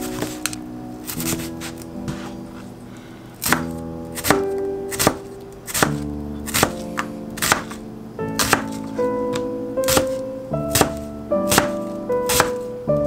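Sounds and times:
background music: 0:00.0 - 0:13.0
knife chopping on cutting board: 0:03.4 - 0:07.8, 0:08.4 - 0:12.6.

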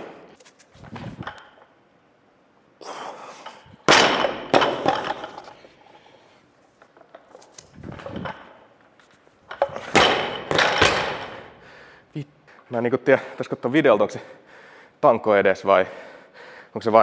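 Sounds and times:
bar and feet landing knock: 0:03.8 - 0:05.4, 0:09.5 - 0:11.4
barbell dropped on platform: 0:03.8 - 0:05.4, 0:09.5 - 0:11.4.

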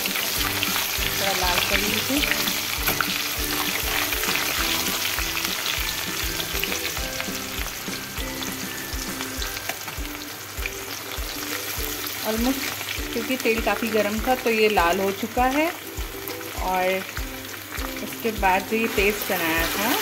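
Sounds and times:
onions sizzling in hot oil: 0:00.0 - 0:20.0.

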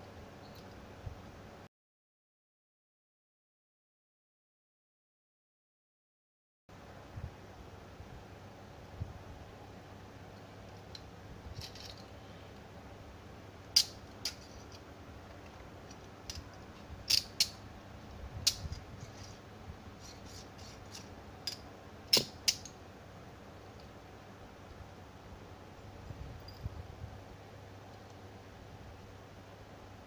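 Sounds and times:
handcuffs clicking: 0:13.8 - 0:14.8, 0:15.9 - 0:17.6, 0:20.9 - 0:22.7.

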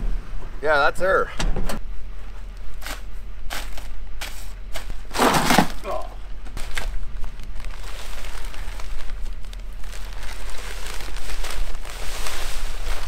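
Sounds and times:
steady low rumble: 0:00.0 - 0:13.0
plastic bag crinkling: 0:06.5 - 0:13.0
salt grains pouring and rattling: 0:07.7 - 0:13.0.

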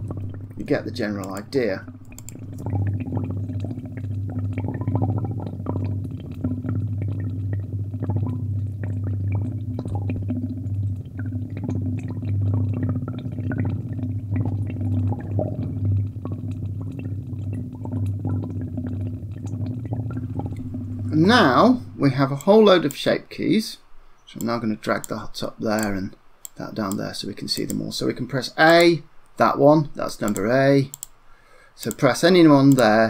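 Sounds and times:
steady low hum: 0:00.0 - 0:22.9.

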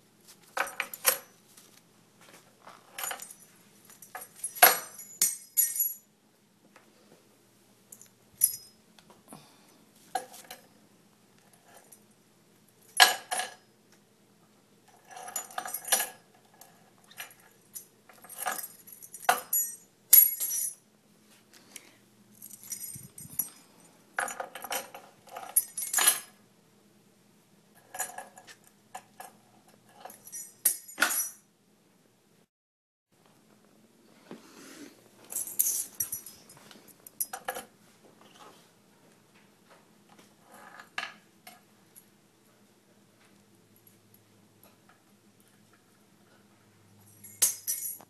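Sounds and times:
small metal objects jingling: 0:22.4 - 0:26.3, 0:35.3 - 0:37.4, 0:47.0 - 0:48.0.

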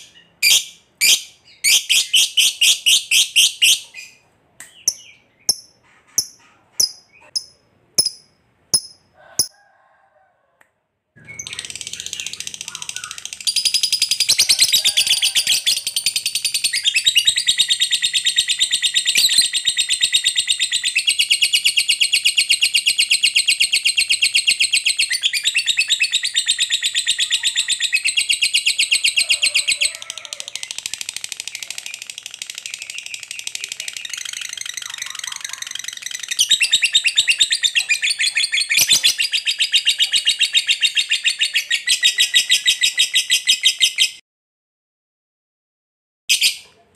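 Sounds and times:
lovebird chattering trill: 0:04.8 - 0:09.5, 0:11.3 - 0:29.9, 0:30.6 - 0:44.2.

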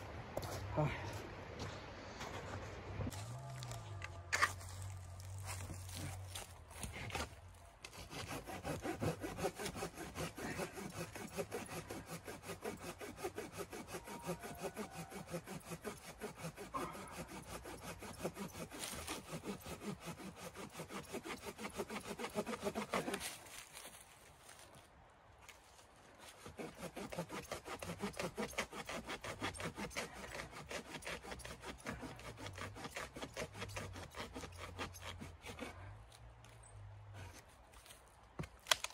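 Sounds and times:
hand saw cutting wood: 0:04.3 - 0:24.0, 0:26.2 - 0:36.2.

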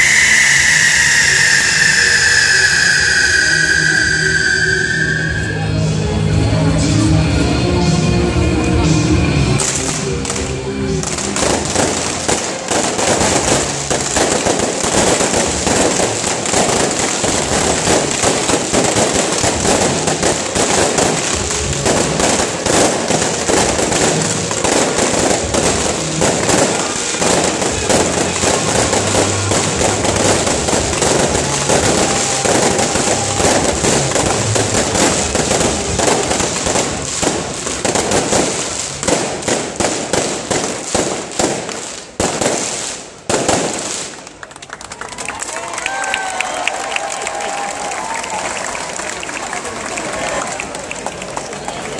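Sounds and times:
fireworks bangs and crackling: 0:00.0 - 0:06.0, 0:09.5 - 0:44.8.

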